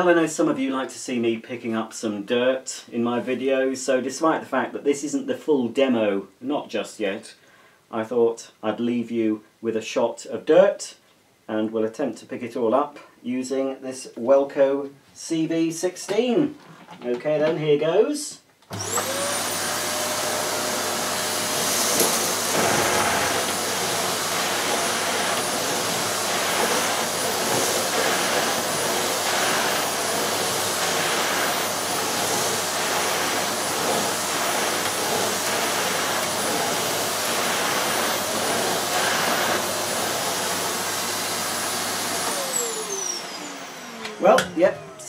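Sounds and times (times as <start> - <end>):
vacuum cleaner whining: 18.7 - 45.0
vacuum motor winding down: 18.7 - 45.0
vacuum nozzle pushed over carpet: 18.7 - 45.0.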